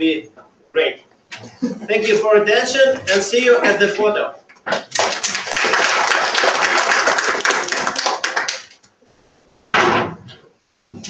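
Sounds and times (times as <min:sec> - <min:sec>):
audience applauding: 0:04.8 - 0:08.8.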